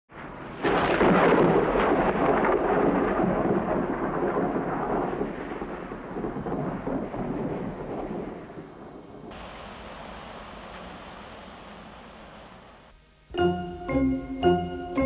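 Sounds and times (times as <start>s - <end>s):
thunder rolling: 0.1s - 12.9s
rain falling: 0.1s - 13.3s.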